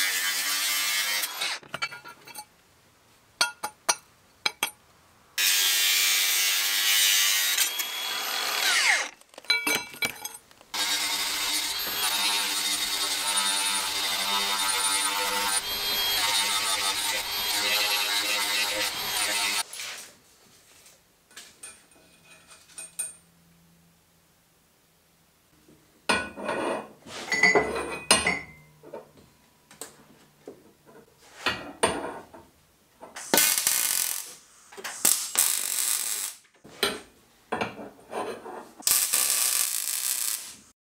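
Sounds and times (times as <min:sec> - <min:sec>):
angle grinder grinding steel: 0:00.0 - 0:01.6, 0:05.4 - 0:09.2, 0:10.7 - 0:19.7, 0:38.9 - 0:40.6
grinder disc spinning down: 0:10.8 - 0:19.6.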